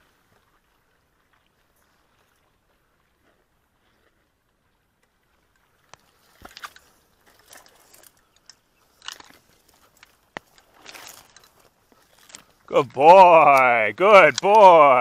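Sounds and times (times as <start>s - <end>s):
dry reeds crunching and crackling: 7.4s - 12.6s.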